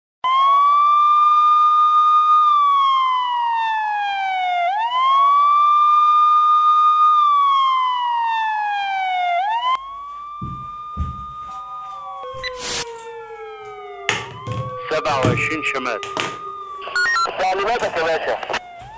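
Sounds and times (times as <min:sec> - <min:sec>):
police siren wailing: 0:00.2 - 0:18.9
knocks: 0:14.1 - 0:16.5.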